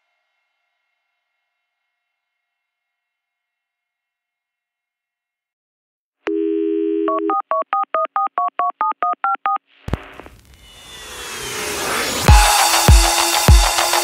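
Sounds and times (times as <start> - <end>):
telephone dial tone: 6.3 - 9.6
touch-tone keypad beeps: 6.3 - 9.6
whoosh: 9.9 - 13.4
electronic music: 11.0 - 14.0.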